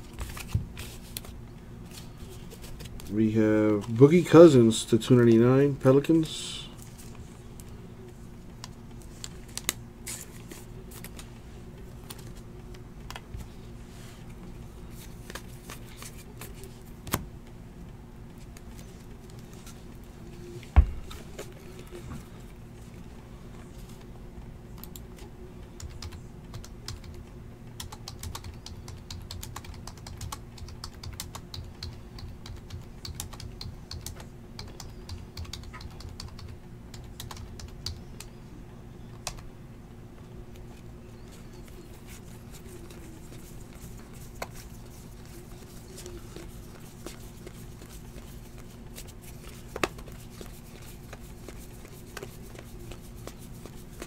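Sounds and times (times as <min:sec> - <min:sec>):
steady low hum: 0:00.0 - 0:54.0
computer keyboard typing: 0:25.8 - 0:27.2, 0:27.8 - 0:38.0.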